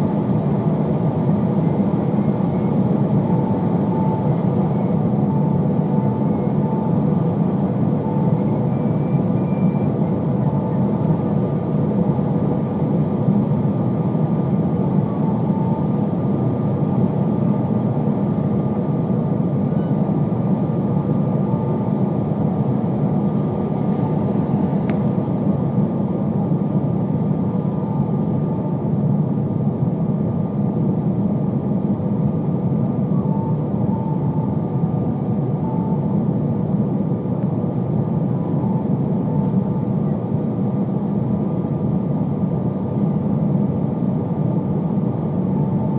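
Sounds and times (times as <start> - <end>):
engine hum in aircraft cabin: 0.0 - 45.9.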